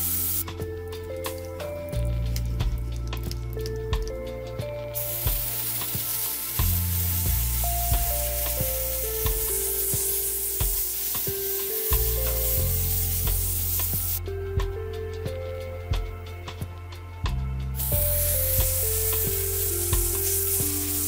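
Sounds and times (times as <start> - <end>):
sandblaster hissing: 0.0 - 0.7, 4.8 - 14.3, 17.8 - 21.0
background music with steady beat: 0.0 - 21.0.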